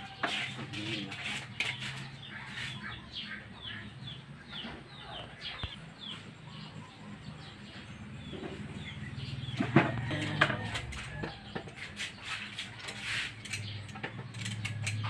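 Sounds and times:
bird chirping: 0.0 - 15.0.

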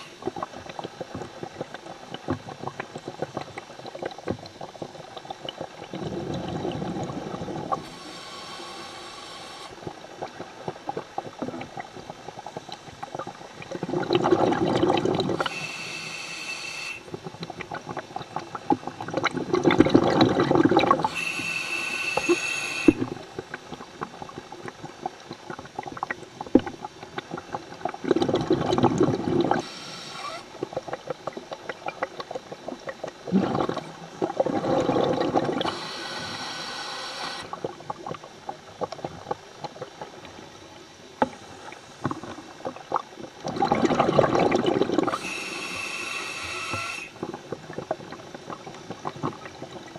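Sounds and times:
diver exhaling bubbles: 5.5 - 9.6, 13.7 - 21.6, 27.4 - 31.0, 33.2 - 37.8, 42.1 - 49.5
regulator hissing inhale: 7.8 - 9.8, 15.4 - 17.1, 21.1 - 23.0.

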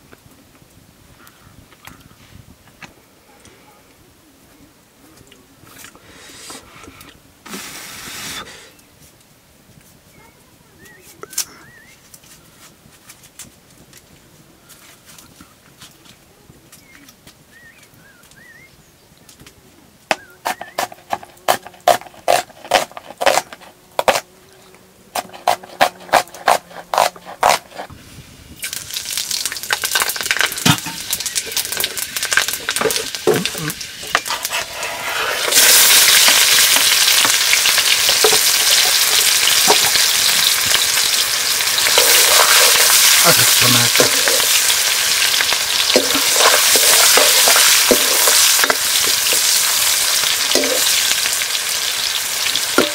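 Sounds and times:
food frying in hot oil: 28.5 - 52.9
clink and scrape of stirring: 45.9 - 49.4, 50.5 - 50.9.

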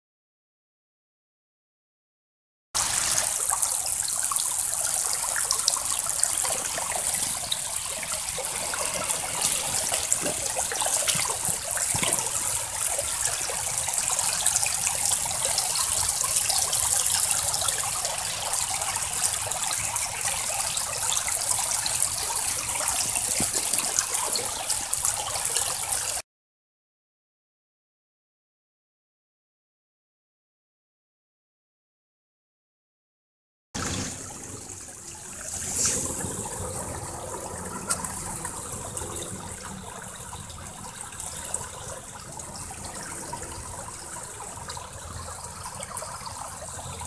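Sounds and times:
water running through sluice: 2.8 - 26.2, 33.8 - 47.0.

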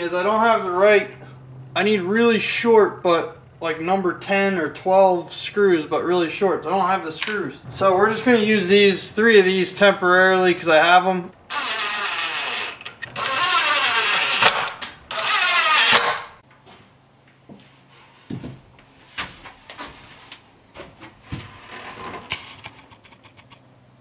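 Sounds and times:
impact driver driving screws: 11.5 - 16.3.

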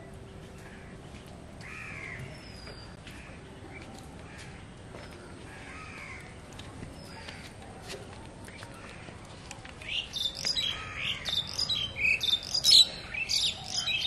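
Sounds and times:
crow cawing: 1.6 - 2.3, 5.5 - 6.3, 10.6 - 11.3
small bird chirping: 9.8 - 14.0.

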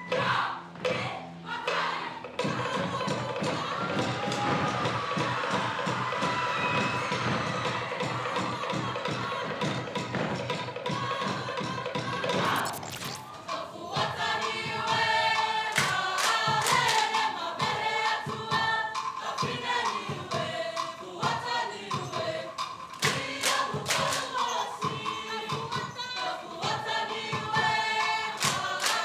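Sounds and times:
choir singing: 0.2 - 29.0
sharp percussive strikes: 12.3 - 13.7.

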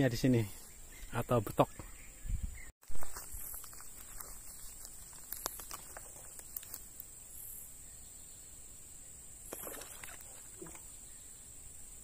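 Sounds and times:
small clicks and ticks: 3.2 - 7.1.

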